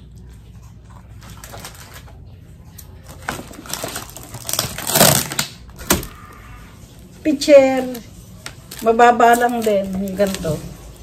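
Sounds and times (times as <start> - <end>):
packaging and bags rustling: 1.2 - 2.3, 2.9 - 6.3, 6.9 - 11.0.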